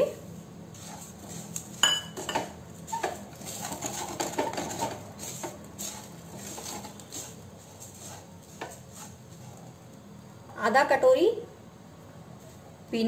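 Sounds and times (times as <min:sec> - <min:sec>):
spatula scraping seeds in a pan: 0:00.7 - 0:09.8.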